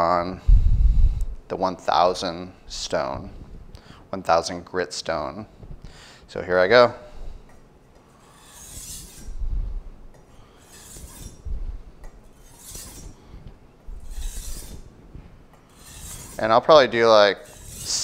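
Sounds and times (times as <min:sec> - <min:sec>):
knife scraping on whetstone: 0:08.1 - 0:09.4, 0:10.3 - 0:13.2, 0:13.9 - 0:14.9, 0:15.6 - 0:16.5, 0:17.3 - 0:18.0.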